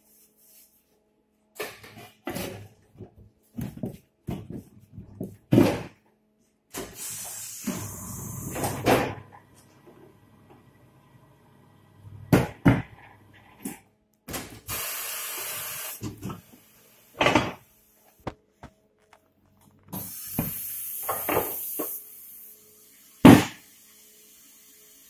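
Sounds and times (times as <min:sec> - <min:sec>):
compressed-air hiss: 0:06.8 - 0:08.6, 0:14.7 - 0:17.2, 0:19.9 - 0:25.0.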